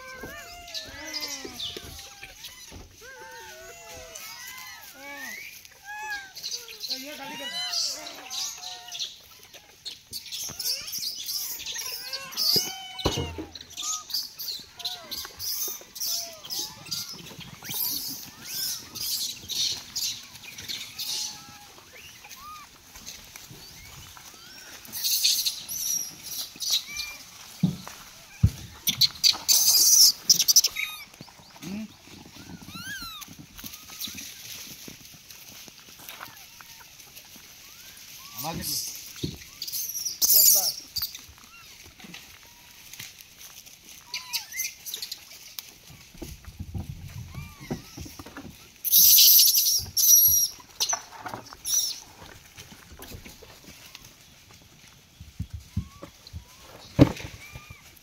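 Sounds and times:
monkey screech: 0.0s - 9.1s, 10.3s - 22.7s, 24.3s - 27.2s, 37.7s - 41.7s, 44.1s - 45.2s, 48.8s - 50.9s
monkeys squealing: 0.0s - 22.8s, 23.7s - 27.4s, 28.3s - 31.2s, 32.2s - 34.4s, 37.6s - 41.8s, 44.1s - 45.3s, 48.8s - 51.0s
dry leaves crunching: 0.0s - 58.0s.

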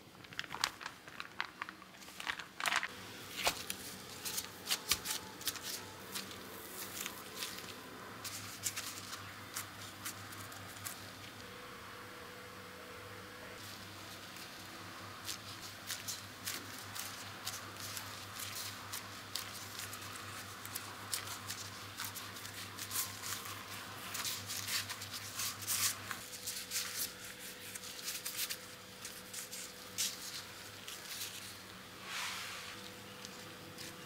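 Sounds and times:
plastic gloves crinkling: 0.0s - 11.5s, 13.6s - 34.0s
potato squishing: 13.6s - 31.8s.

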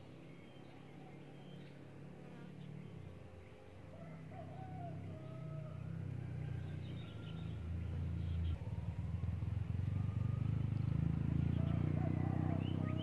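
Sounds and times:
vehicle engine running: 4.3s - 13.0s.

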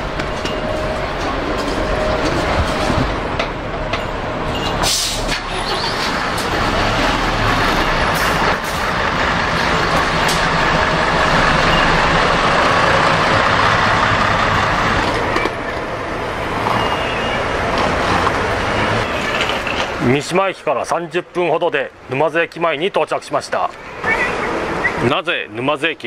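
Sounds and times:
bus diesel engine idling: 0.0s - 17.8s.

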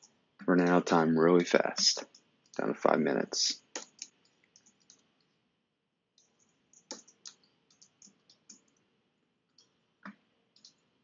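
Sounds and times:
mouse and keyboard clicking: 3.7s - 5.1s, 6.2s - 8.8s, 9.6s - 10.8s.

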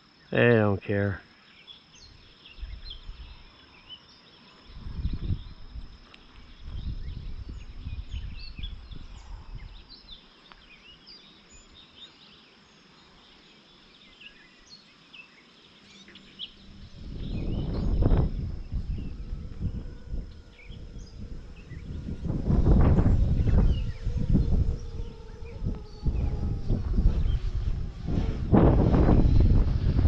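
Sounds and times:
birds chirping: 0.0s - 30.0s
wind buffeting microphone: 2.0s - 3.5s, 4.6s - 10.2s, 16.2s - 30.0s.

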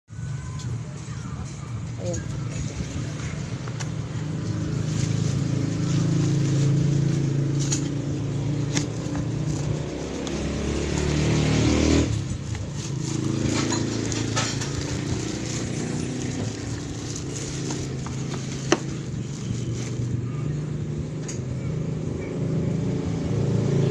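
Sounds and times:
engine hum: 0.1s - 23.9s
plastic wrap crinkling: 3.7s - 11.2s, 11.8s - 20.3s.

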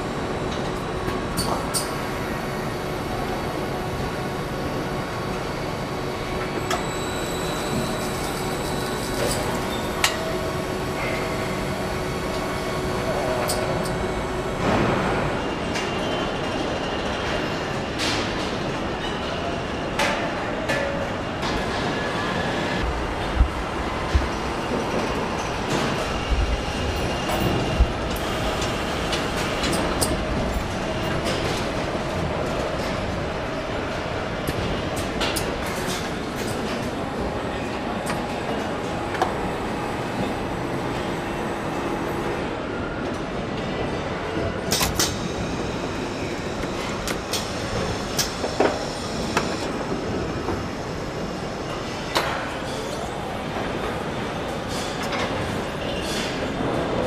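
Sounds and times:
production line mechanical din: 0.0s - 18.6s
hum of conveyors and machinery: 0.0s - 57.0s.

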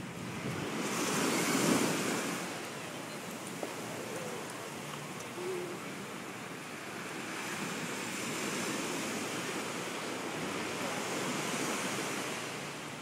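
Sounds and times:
ocean waves breaking: 0.0s - 13.0s.

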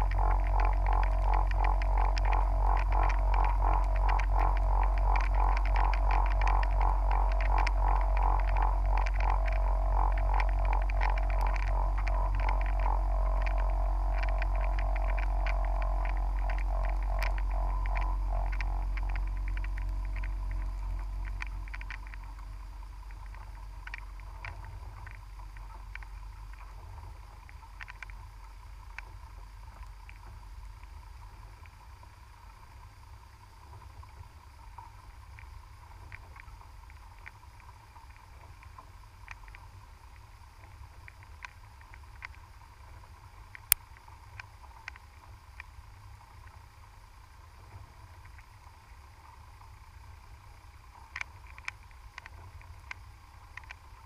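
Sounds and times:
underwater clicks: 0.0s - 26.6s
faint steady tone: 0.0s - 54.0s
low rumble of moving water: 0.0s - 54.0s.

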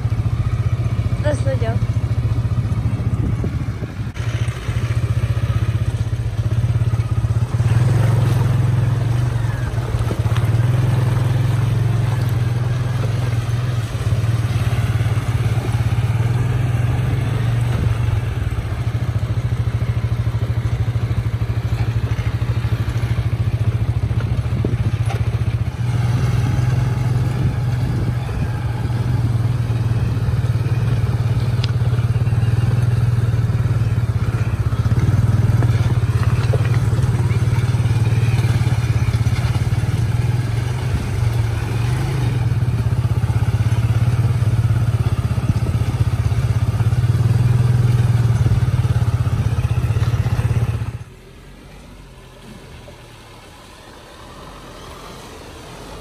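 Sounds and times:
diesel truck engine running: 0.0s - 51.6s
stones clattering under tyres: 3.2s - 16.5s, 30.4s - 42.2s.

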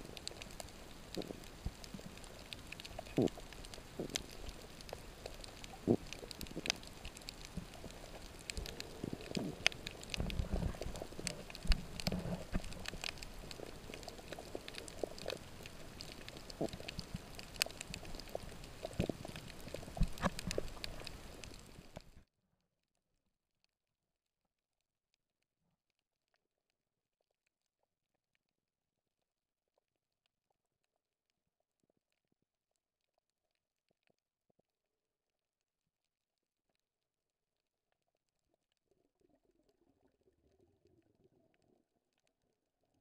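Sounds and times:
low underwater rumbling: 0.0s - 22.2s
underwater clicks and crackles: 0.0s - 22.2s, 35.5s - 43.0s.

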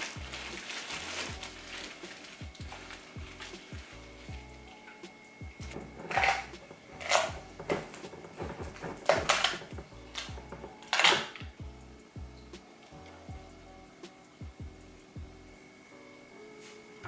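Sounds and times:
background music: 0.0s - 17.0s
dishes clinking and knocking: 4.9s - 11.6s
plastic jar lid unscrewed: 5.8s - 11.4s.

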